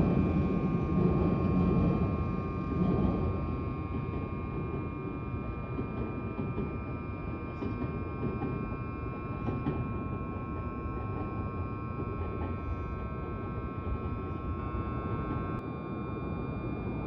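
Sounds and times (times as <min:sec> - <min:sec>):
train rumbling: 0:00.0 - 0:15.6.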